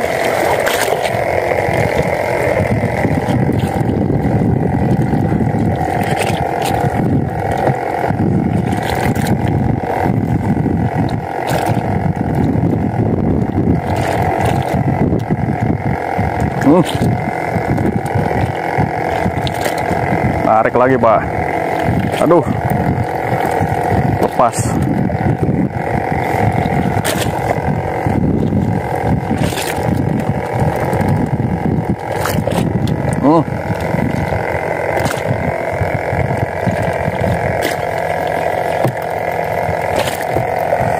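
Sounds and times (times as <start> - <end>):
steady hum: 0.0 - 40.9
water slapping a boat: 0.0 - 40.9
wind buffeting microphone: 0.0 - 40.9.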